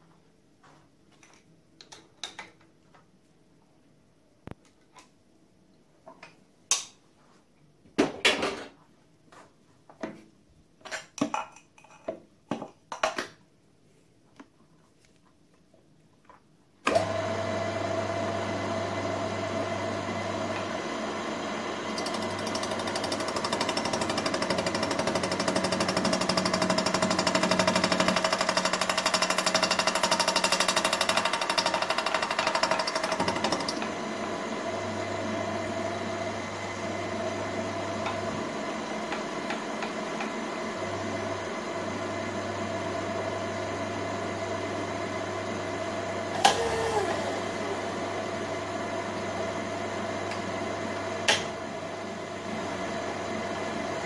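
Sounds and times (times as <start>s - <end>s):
milling machine motor hum: 16.9s - 54.0s.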